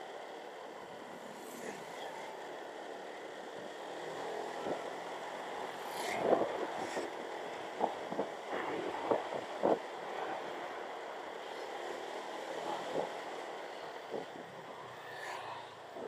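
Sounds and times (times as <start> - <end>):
road and engine noise: 0.0 - 16.0
wind buffeting microphone: 6.1 - 10.2.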